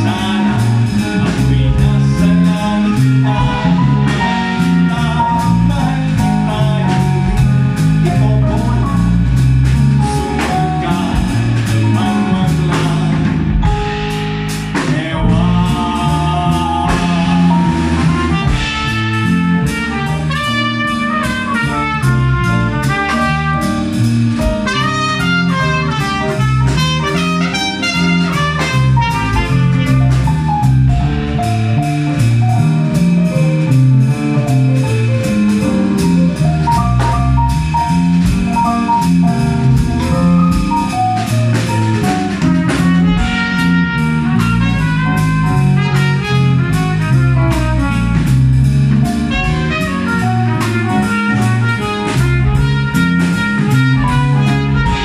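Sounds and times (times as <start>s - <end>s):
trumpet: 0.0s - 9.2s, 11.9s - 31.2s, 35.6s - 55.0s
drum kit with cymbals: 0.0s - 55.0s
electric keyboard: 0.0s - 55.0s
stepping bass line: 0.0s - 55.0s.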